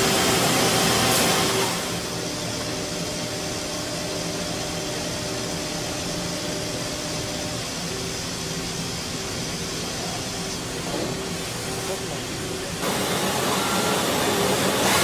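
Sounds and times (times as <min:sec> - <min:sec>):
faint machine hum: 0:00.0 - 0:15.0
milling machine whirring hiss: 0:00.0 - 0:15.0.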